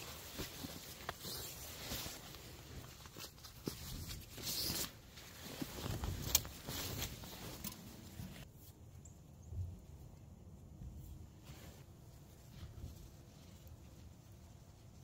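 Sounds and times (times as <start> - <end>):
nylon fabric rustling and swishing: 0.0 - 8.5.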